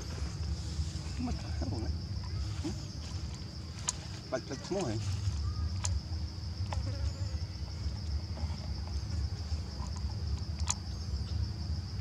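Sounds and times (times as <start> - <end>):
insects droning: 0.0 - 12.0
sharp clicks: 9.8 - 10.9.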